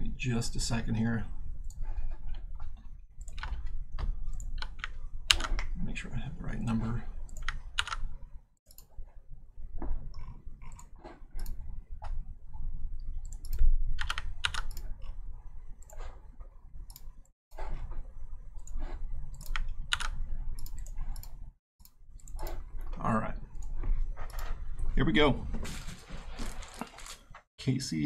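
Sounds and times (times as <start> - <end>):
keyboard typing: 1.6 - 5.7, 6.6 - 9.1, 13.2 - 15.2, 18.5 - 22.7.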